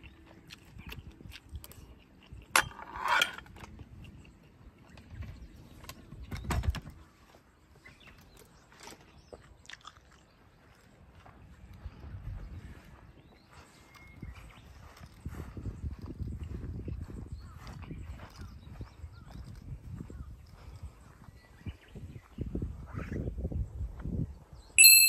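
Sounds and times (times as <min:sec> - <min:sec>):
chewing: 0:00.0 - 0:02.5, 0:03.5 - 0:06.0, 0:07.9 - 0:11.9.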